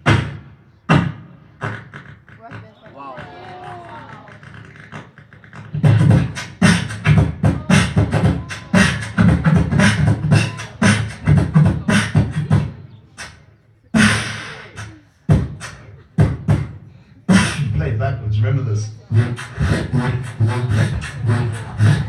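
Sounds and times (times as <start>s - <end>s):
amplified beatboxing: 0.0s - 22.0s.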